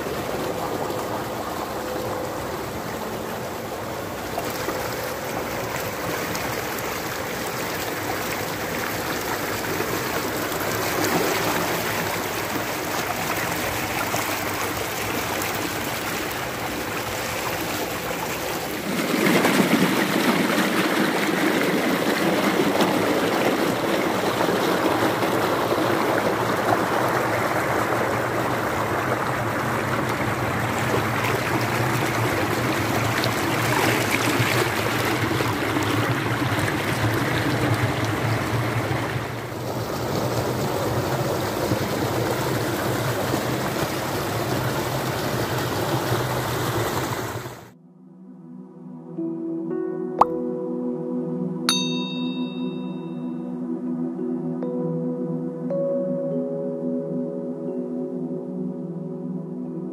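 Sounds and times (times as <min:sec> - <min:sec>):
water gushing into concrete tank: 0:00.0 - 0:47.8.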